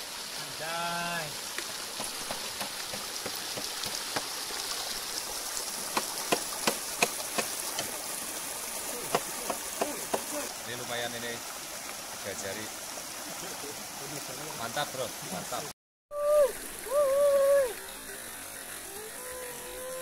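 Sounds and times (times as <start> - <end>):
river water running over stones: 0.0 - 20.0.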